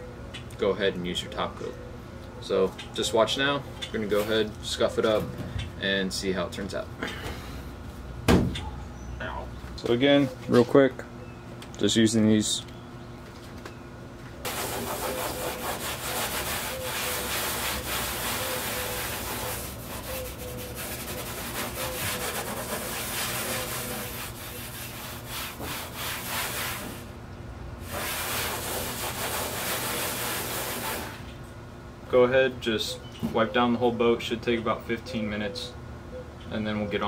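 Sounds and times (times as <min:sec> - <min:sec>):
abrasive pad scrubbing metal: 0:14.4 - 0:27.1, 0:27.8 - 0:31.2.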